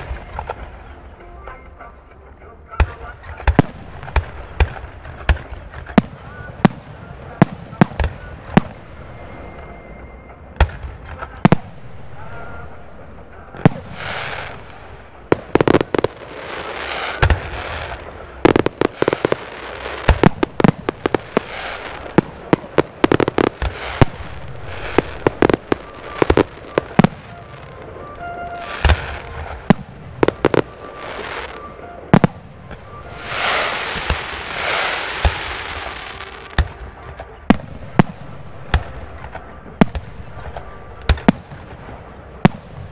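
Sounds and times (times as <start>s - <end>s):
firework hissing and crackling: 10.6s - 36.7s
firework shells bursting: 13.4s - 36.8s.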